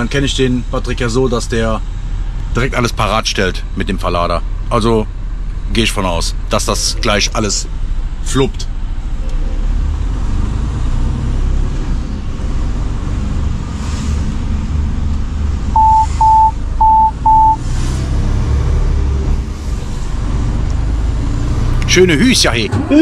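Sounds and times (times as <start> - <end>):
truck engine and road rumble: 0.0 - 23.0
high electronic beeps: 15.8 - 17.6.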